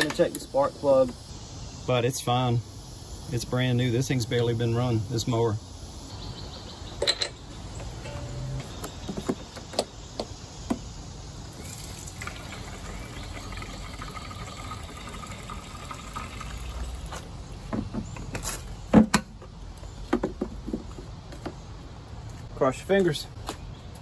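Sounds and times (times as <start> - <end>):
gasoline pouring into tank: 11.5 - 17.2.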